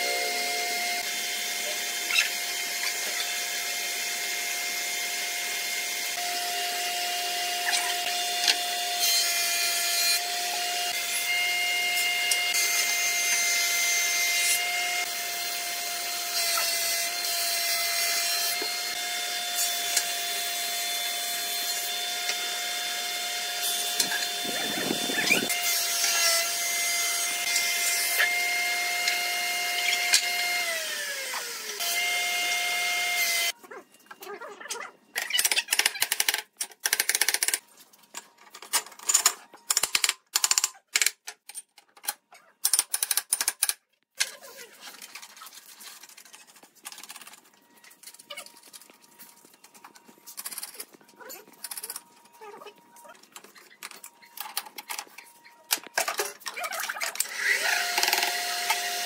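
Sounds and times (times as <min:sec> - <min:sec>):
power tool whining: 0:00.0 - 0:33.6, 0:49.4 - 0:59.0.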